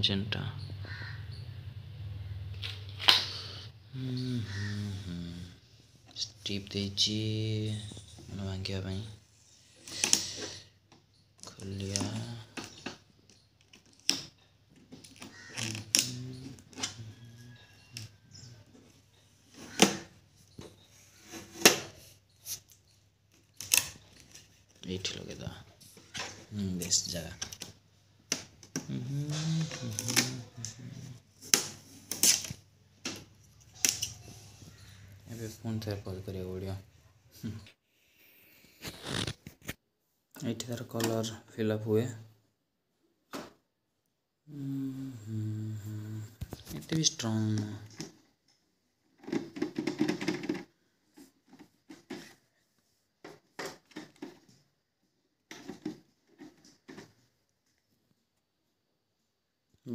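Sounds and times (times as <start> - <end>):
man's voice murmuring: 3.9 - 5.6, 28.9 - 31.2
plastic scraping and rattling: 9.7 - 35.2, 49.0 - 52.6, 53.2 - 54.7, 55.4 - 57.4.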